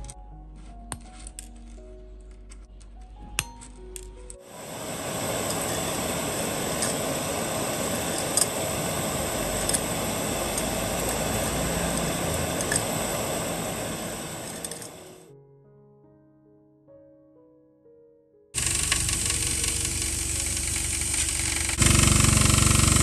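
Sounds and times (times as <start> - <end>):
blowtorch flame hissing: 4.4 - 15.2, 18.6 - 23.0.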